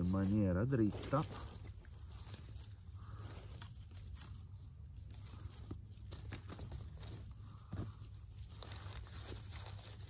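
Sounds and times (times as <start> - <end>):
crunch in leaf litter: 0.0 - 10.0
dry leaves crackling and rustling: 0.0 - 10.0.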